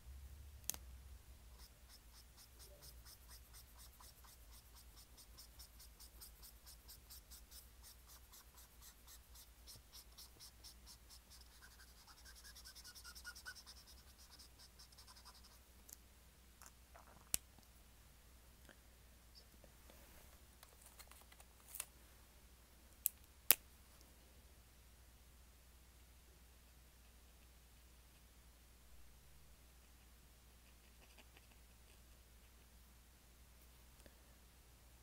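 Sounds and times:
pen scratching on paper: 0:01.5 - 0:15.6.

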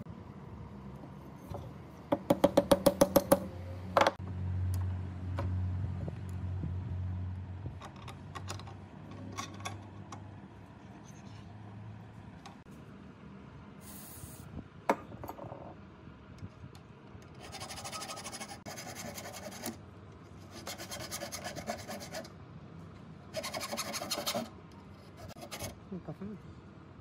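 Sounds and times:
file scraping steel: 0:17.4 - 0:19.8, 0:20.4 - 0:22.3, 0:23.3 - 0:25.8.

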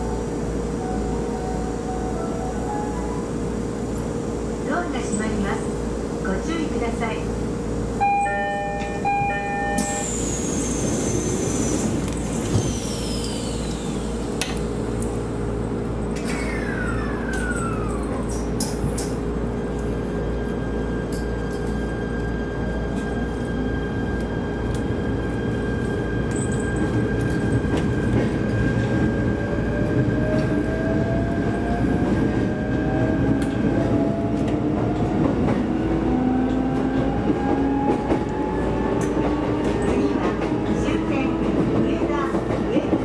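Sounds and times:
train wheels rumbling on rails: 0:02.2 - 0:43.0
traction motor whine rising: 0:09.2 - 0:15.1, 0:16.2 - 0:18.5.

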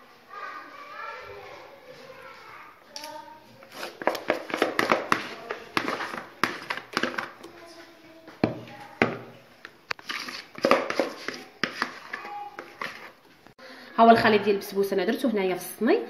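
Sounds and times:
spatula scraping batter: 0:03.4 - 0:09.0, 0:09.6 - 0:13.4.

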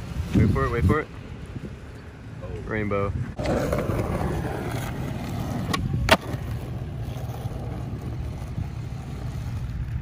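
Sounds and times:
skateboard clacking on asphalt: 0:03.4 - 0:10.0.

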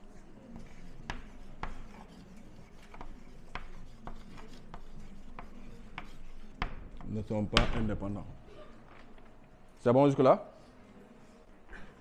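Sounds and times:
chalk scraping on blackboard: 0:00.0 - 0:07.5
chalk tapping on board: 0:00.6 - 0:07.5.

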